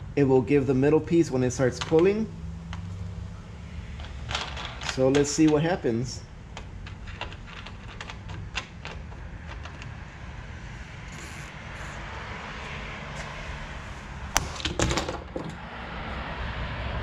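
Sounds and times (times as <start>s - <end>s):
plastic tool clicks and creaks: 6.5s - 10.1s.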